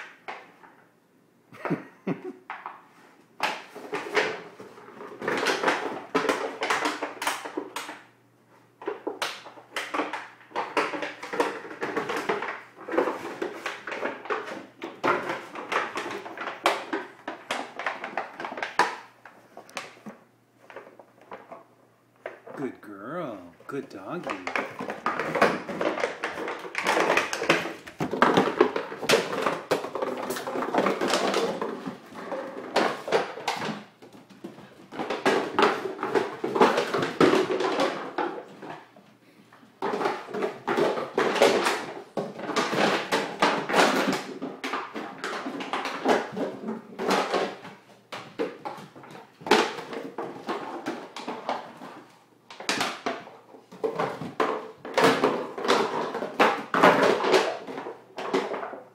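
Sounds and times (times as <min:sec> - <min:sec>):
plastic bottle with ice rattling: 0:08.9 - 0:21.7, 0:24.2 - 0:39.0, 0:39.7 - 0:58.9.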